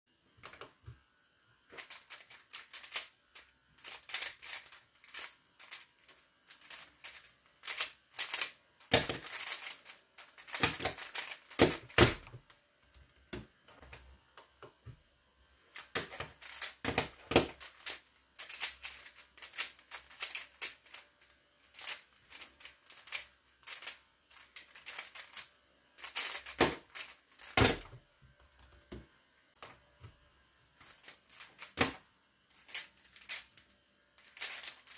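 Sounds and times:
speed cube clicking clatter: 0:01.8 - 0:12.2, 0:15.8 - 0:27.8, 0:30.8 - 0:33.6, 0:34.2 - 0:34.9.

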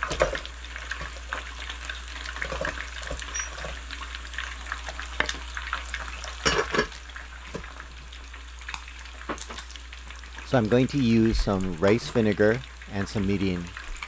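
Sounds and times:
steady background hiss: 0:10.4 - 0:14.0.

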